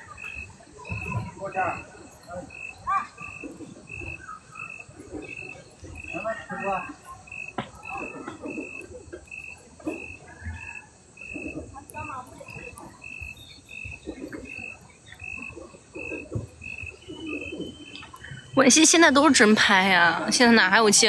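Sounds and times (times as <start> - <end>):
cricket or frog chirping: 0.0 - 19.7
faint low background murmur: 0.0 - 21.0.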